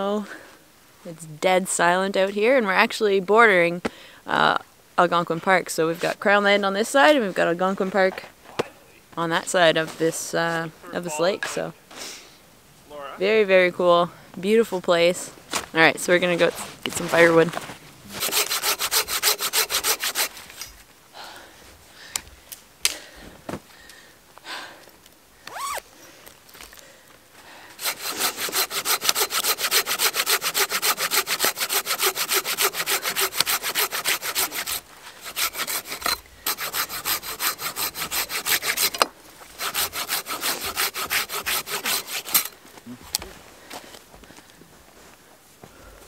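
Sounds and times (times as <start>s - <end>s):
irregular scraping: 15.5s - 20.8s, 27.8s - 42.6s
saw cutting through log: 18.1s - 20.6s, 27.8s - 39.0s, 39.6s - 42.6s.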